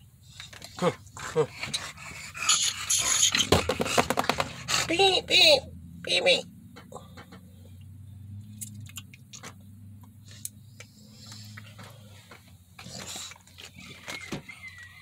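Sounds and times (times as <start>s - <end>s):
dog breathing and mouth noises: 0.2s - 5.1s, 10.2s - 14.6s.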